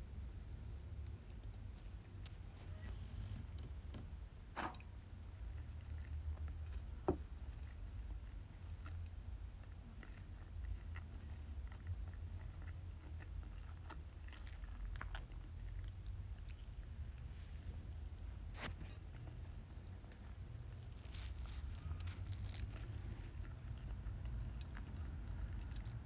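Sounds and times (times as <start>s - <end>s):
low steady hum: 0.0s - 26.0s
pastry sheet rustling: 20.6s - 23.4s.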